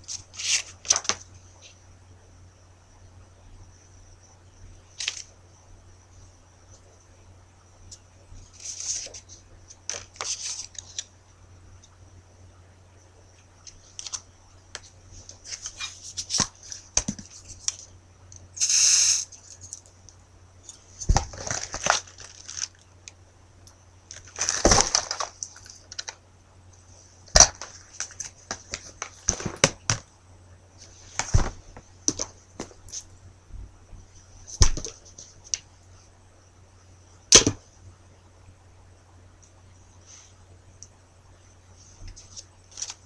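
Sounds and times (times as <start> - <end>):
low electrical hum: 0.0 - 43.0
paper and cardboard rustling: 8.5 - 11.1, 14.8 - 17.9, 21.0 - 22.8, 24.1 - 26.2.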